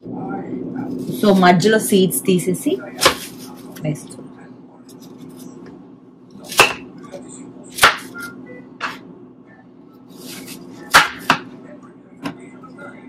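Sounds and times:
knife chopping on cutting board: 3.0s - 3.4s, 6.4s - 6.9s, 7.7s - 8.2s, 10.2s - 11.5s.

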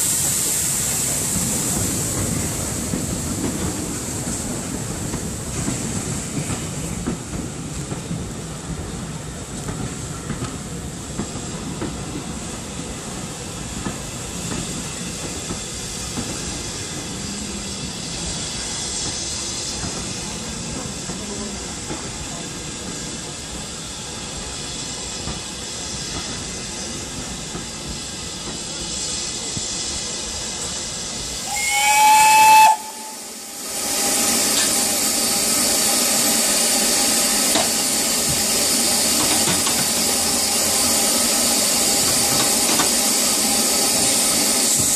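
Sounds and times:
loud hiss of steam: 0.0s - 44.9s
train carriages rumbling on rails: 0.0s - 44.9s
steam locomotive whistle: 31.4s - 35.0s.

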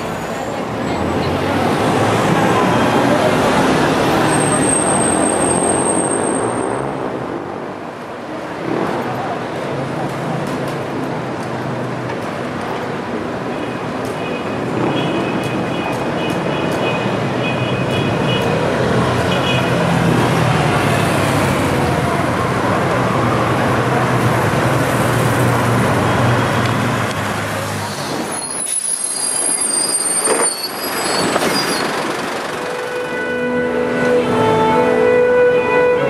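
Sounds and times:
city street traffic: 0.0s - 36.0s
high squeaks: 27.9s - 32.1s
heavy vehicle engine humming: 30.7s - 36.0s
violin playing: 32.7s - 36.0s.

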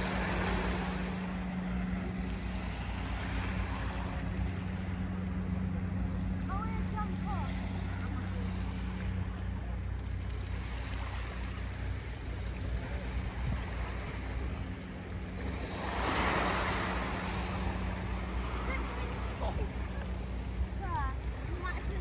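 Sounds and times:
waves washing onto pebbles: 0.0s - 1.6s
steady low hum: 0.0s - 22.0s.

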